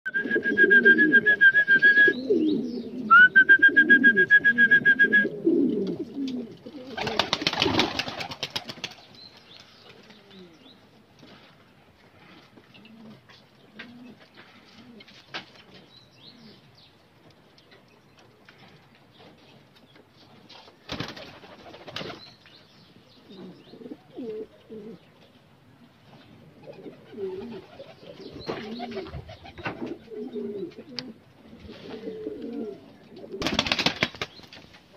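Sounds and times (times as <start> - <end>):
high whistling tone: 0.1 - 2.3, 3.1 - 5.4
pigeons cooing: 0.2 - 9.0, 12.2 - 15.2, 23.2 - 25.1, 26.4 - 33.8
wings flapping: 6.8 - 10.2, 20.9 - 22.2, 33.4 - 34.8.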